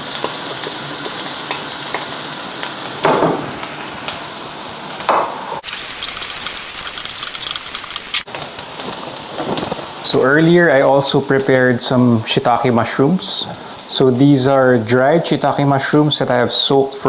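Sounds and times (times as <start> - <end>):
onions sizzling in butter: 0.0 - 11.3.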